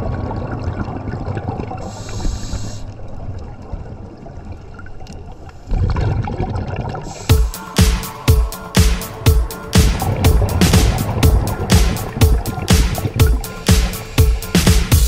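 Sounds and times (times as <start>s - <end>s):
water sloshing and gurgling: 0.0s - 15.0s.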